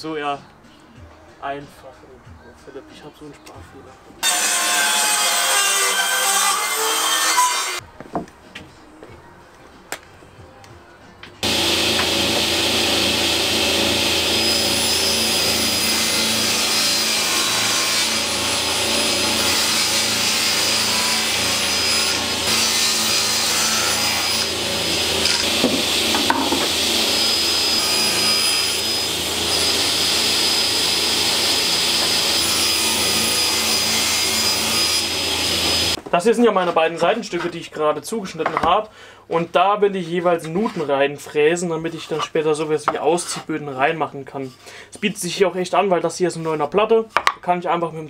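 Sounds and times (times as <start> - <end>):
table saw cutting board: 4.2 - 7.8, 11.4 - 36.0.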